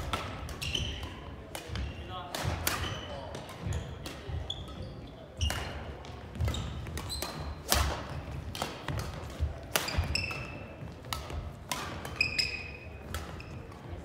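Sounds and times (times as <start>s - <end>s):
rackets hitting shuttlecock: 0.0s - 14.0s.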